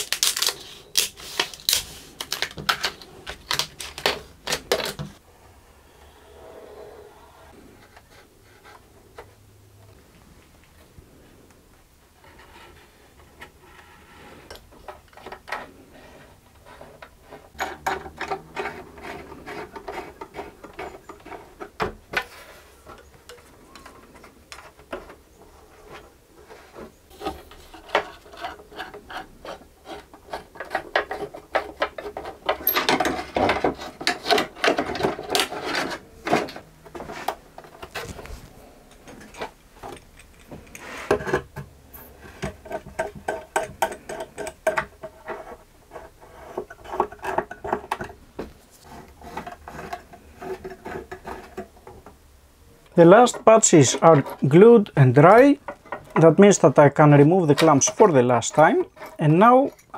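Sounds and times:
knife scraping wood: 15.6 - 38.1, 40.7 - 52.0.

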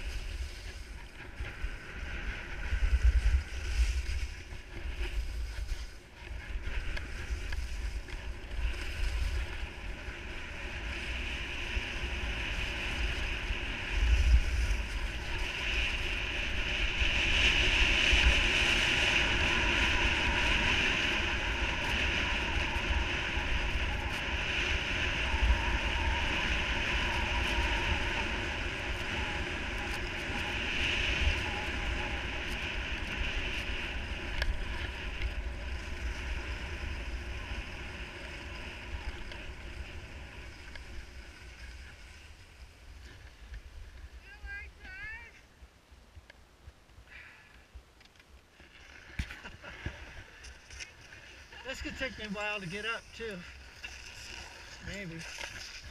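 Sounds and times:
skis hissing over snow: 0.0 - 43.5, 49.0 - 55.9
wind buffeting microphone: 0.0 - 44.6.

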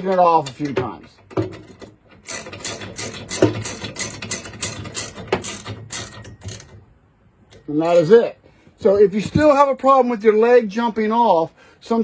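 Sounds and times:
ratchet wrench clicking: 1.6 - 6.8.

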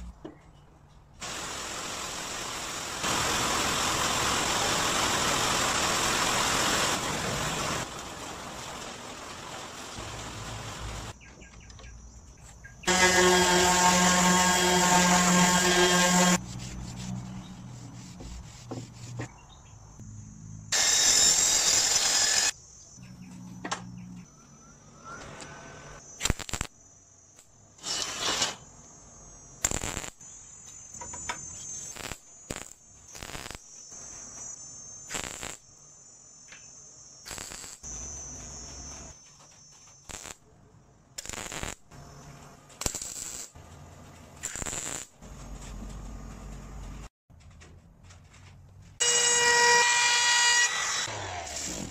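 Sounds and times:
loud hiss: 1.2 - 11.1
faint high whine: 21.8 - 41.0.

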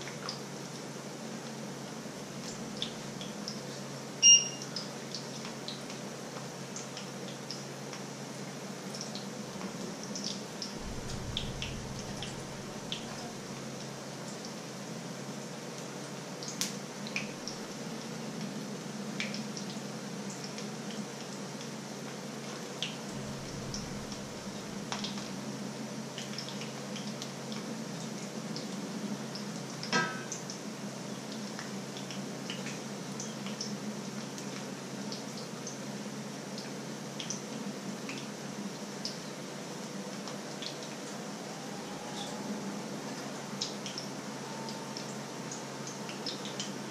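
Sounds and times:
low steady hum: 10.8 - 14.3, 23.0 - 25.4.

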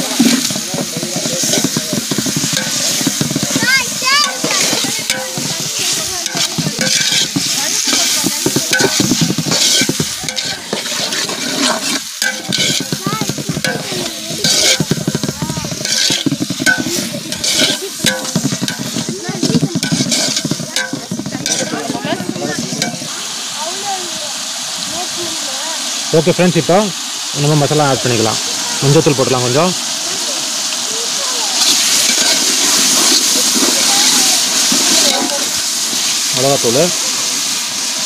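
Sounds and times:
metal ladle scraping a pot: 0.0 - 23.1, 31.6 - 36.2
onions frying in oil sizzling: 0.0 - 38.0.

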